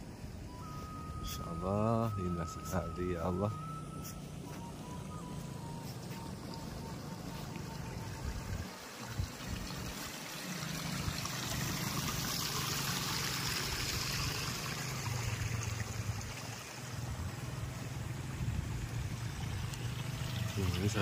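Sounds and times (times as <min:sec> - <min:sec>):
low steady hum: 0:00.0 - 0:10.3
water running: 0:05.7 - 0:21.0.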